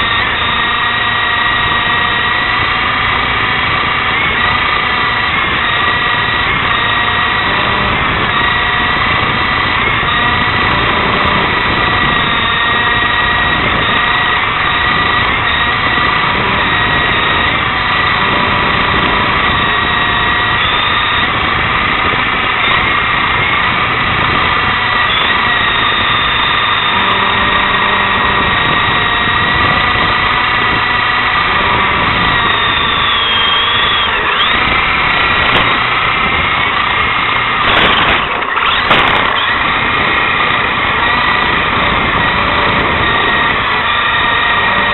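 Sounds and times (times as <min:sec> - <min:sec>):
toy helicopter motor whining: 0:00.0 - 0:44.9.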